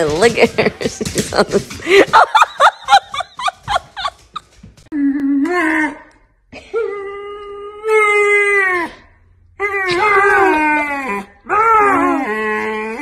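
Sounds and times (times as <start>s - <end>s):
puppy howling: 9.6s - 13.0s.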